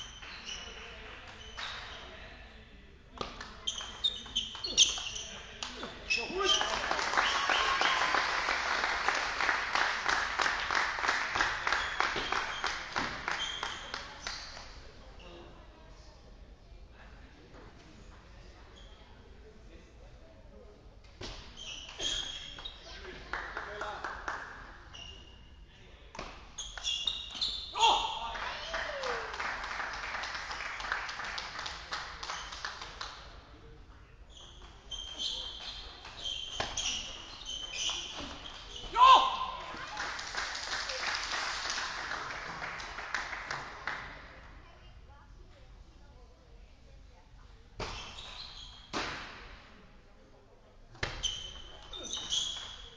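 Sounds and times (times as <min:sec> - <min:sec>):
people clapping: 0:00.0 - 0:02.1, 0:05.5 - 0:14.8, 0:21.8 - 0:24.9, 0:27.9 - 0:33.4, 0:39.5 - 0:44.6.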